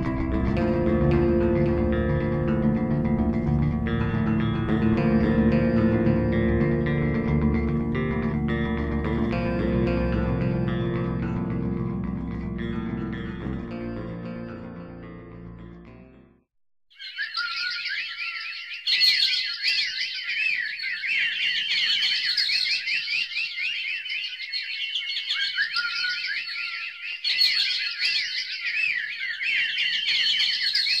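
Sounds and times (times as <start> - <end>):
high chirping and warbling: 17.0 - 31.0.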